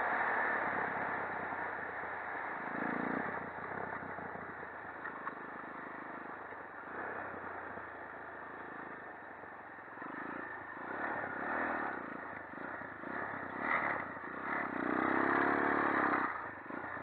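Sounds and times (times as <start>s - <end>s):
quad engine running: 0.0s - 17.0s.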